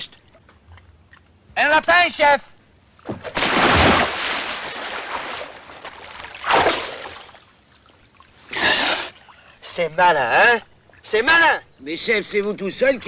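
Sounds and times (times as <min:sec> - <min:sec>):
water sloshing and churning: 0:03.0 - 0:09.8
person splashing into water: 0:03.1 - 0:07.5.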